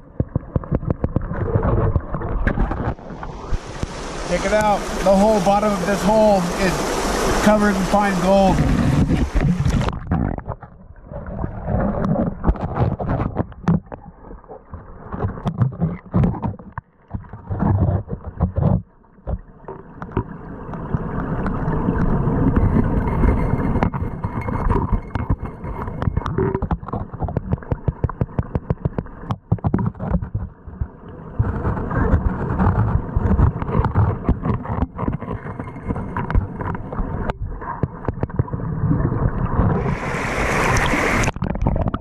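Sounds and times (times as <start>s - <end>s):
underwater river current rumble: 0.0s - 42.0s.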